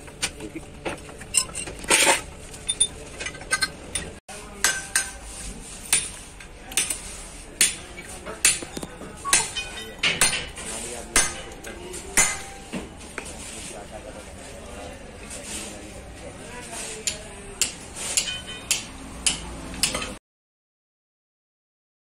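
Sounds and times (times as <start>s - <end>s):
steel tool clanking on metal: 1.2s - 12.9s, 17.0s - 20.2s.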